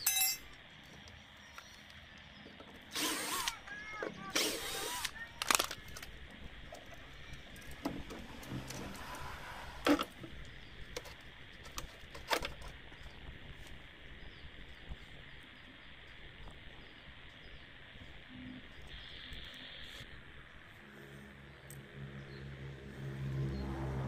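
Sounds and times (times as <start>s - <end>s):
clicks and knocks of small parts: 5.0s - 8.8s.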